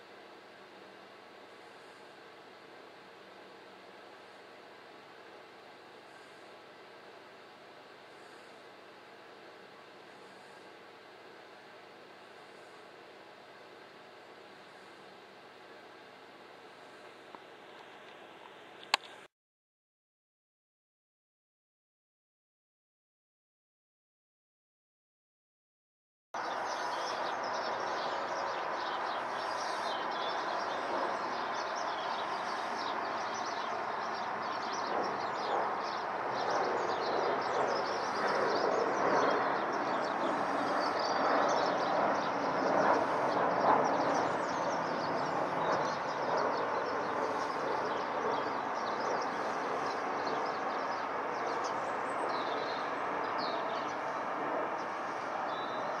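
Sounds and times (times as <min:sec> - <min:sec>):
birds chirping: 0:26.4 - 0:56.0
jet airliner passing overhead: 0:26.4 - 0:56.0.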